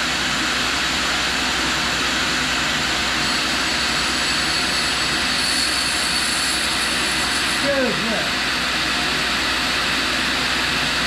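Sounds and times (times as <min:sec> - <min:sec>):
grinding wheel spinning: 0:03.1 - 0:08.5.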